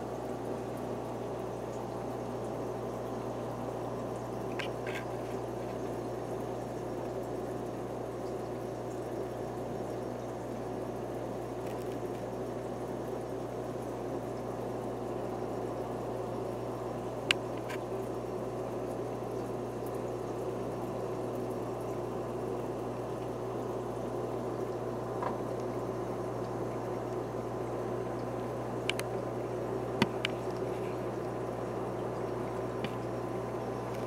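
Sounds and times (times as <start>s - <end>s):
aquarium filter hum: 0.0s - 34.0s
water bubbling: 16.0s - 34.0s.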